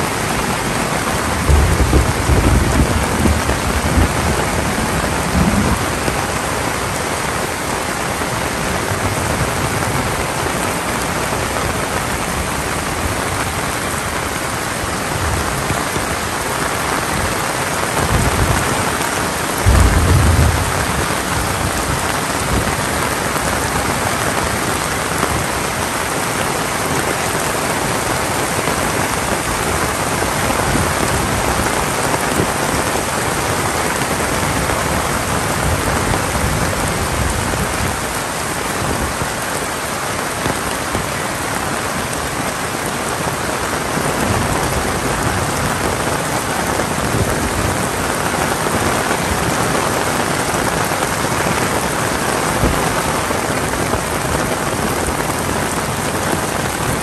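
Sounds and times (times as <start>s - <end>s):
heavy rain: 0.0s - 57.0s
low rumbles: 19.6s - 22.7s.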